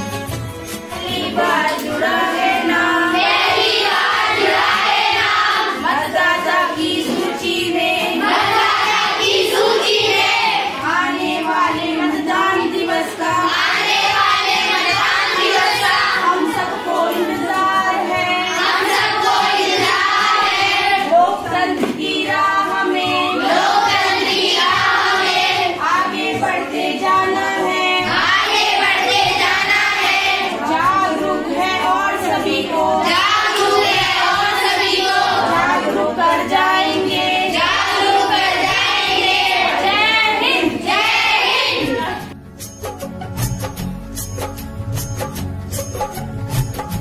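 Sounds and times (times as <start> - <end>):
girls singing together: 0.9 - 42.4.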